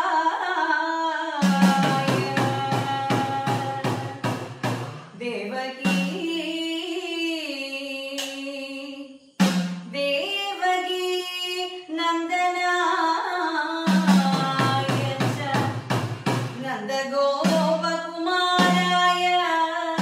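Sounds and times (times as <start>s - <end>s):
woman singing long held notes: 0.0s - 4.3s, 5.1s - 9.2s, 9.9s - 15.9s, 16.6s - 20.0s
hourglass drum strokes: 1.5s - 5.2s.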